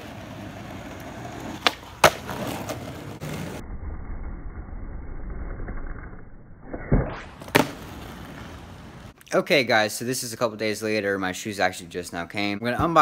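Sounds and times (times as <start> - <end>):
skateboard clacks: 0.0 - 3.2, 7.4 - 8.4
skateboard rolling on asphalt: 0.0 - 6.4, 7.3 - 9.2.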